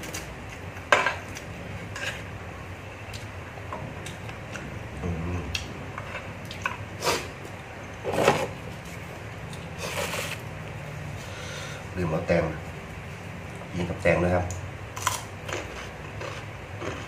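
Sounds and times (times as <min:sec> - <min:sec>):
chewing: 0:15.0 - 0:17.0.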